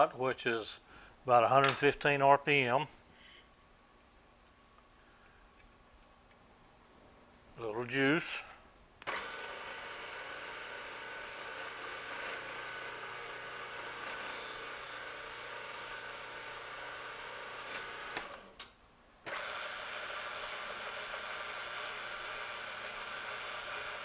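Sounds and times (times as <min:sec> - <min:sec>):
milling machine humming: 0:09.2 - 0:18.4, 0:19.5 - 0:24.0.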